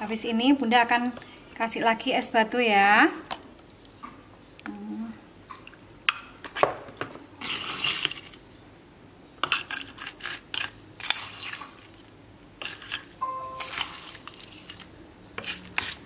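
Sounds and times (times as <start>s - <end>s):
rustling ice scoop: 9.7s - 16.0s
metal spoon clinking: 13.2s - 14.6s.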